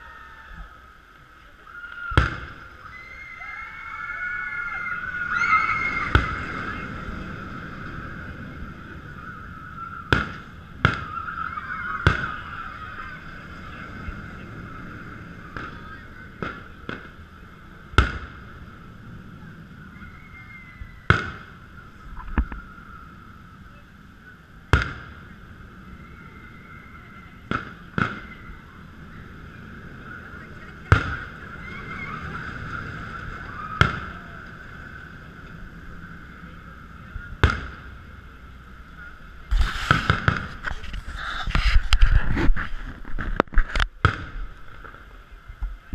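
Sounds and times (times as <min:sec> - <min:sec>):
distant fireworks bangs: 0:05.1 - 0:19.0, 0:20.4 - 0:22.6, 0:24.7 - 0:25.8, 0:27.3 - 0:35.5, 0:36.6 - 0:38.1, 0:39.5 - 0:42.6.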